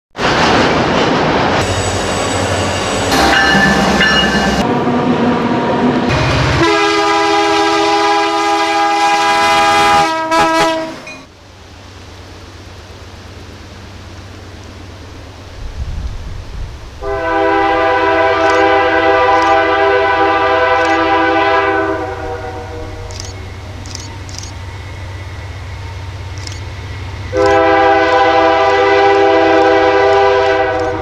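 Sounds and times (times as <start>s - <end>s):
train rumbling on rails: 0.1s - 31.0s
locomotive air horn: 6.1s - 11.1s, 17.0s - 23.1s, 27.3s - 31.0s
steady background hiss: 11.0s - 31.0s.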